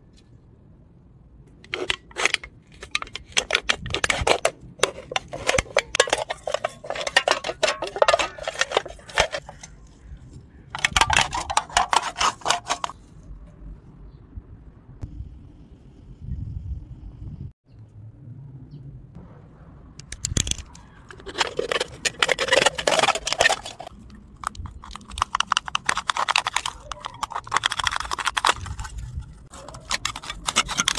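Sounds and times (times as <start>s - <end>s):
knife cutting aluminium can: 1.6s - 9.7s, 10.7s - 12.9s, 20.4s - 30.9s
metal crinkling: 1.6s - 13.0s, 20.0s - 30.9s.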